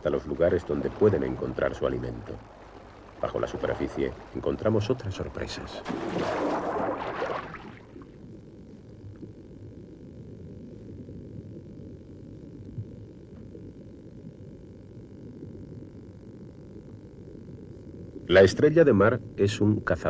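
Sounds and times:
water splashing: 0.0s - 8.2s
muffled underwater rumble: 0.0s - 20.0s.

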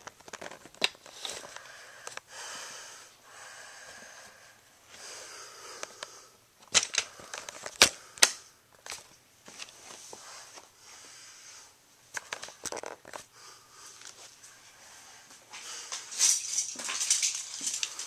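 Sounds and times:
soft hissing noise: 1.0s - 18.0s
plastic toy train pieces clicking: 6.6s - 8.4s, 16.2s - 18.0s.

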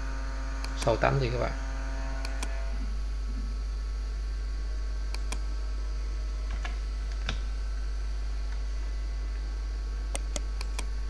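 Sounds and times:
low electrical hum: 0.0s - 11.0s
computer mouse clicks: 0.6s - 1.0s, 2.2s - 2.6s, 5.1s - 5.4s, 10.1s - 10.9s.

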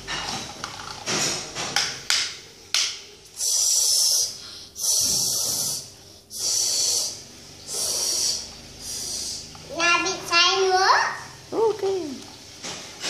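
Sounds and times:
mouth-made shhh hisses: 3.2s - 9.7s.

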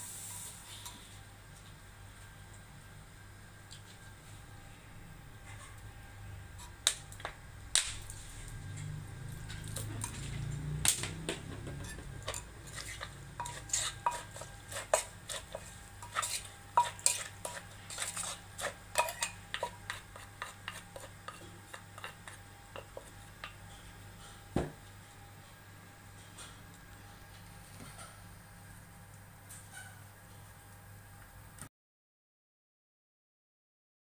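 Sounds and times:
metal spoon clinking in a clay mortar: 11.8s - 23.0s.

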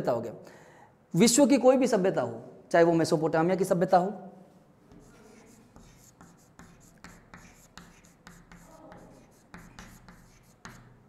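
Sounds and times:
chalk scratching on chalkboard: 4.9s - 11.0s.

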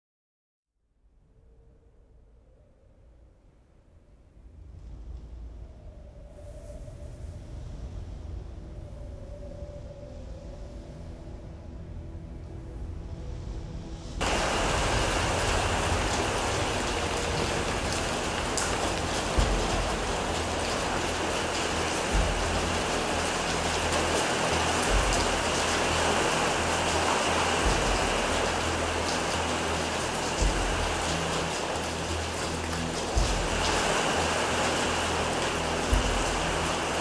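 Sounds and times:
heavy rain pouring: 14.2s - 37.0s
low rumbles: 14.2s - 37.0s.

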